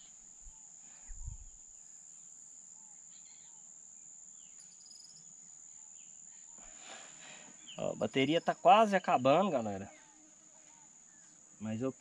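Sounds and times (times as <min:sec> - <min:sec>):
bird chirps: 0:04.3 - 0:11.5.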